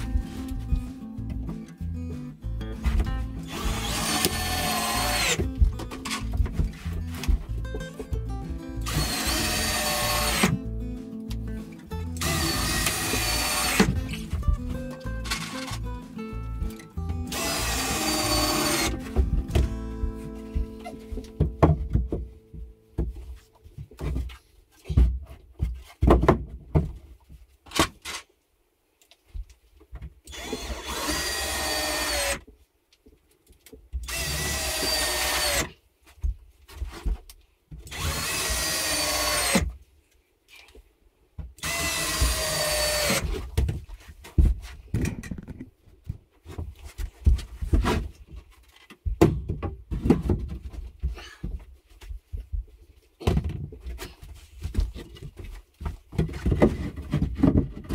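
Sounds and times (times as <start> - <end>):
cordless drill whining into wood: 3.4 - 6.2, 8.8 - 10.6, 12.2 - 14.3, 16.7 - 19.1, 30.3 - 32.4, 34.0 - 35.7, 37.9 - 39.7, 41.6 - 43.3.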